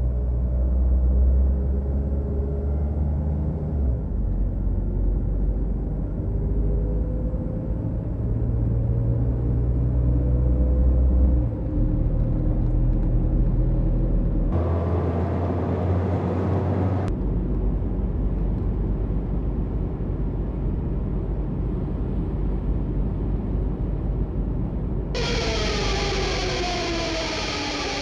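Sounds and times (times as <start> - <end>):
car cabin road and engine rumble: 12.4 - 28.0.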